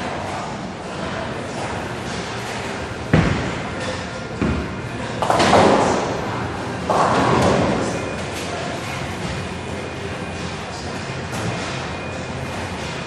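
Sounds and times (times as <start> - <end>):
bowling balls thudding: 1.5 - 8.1.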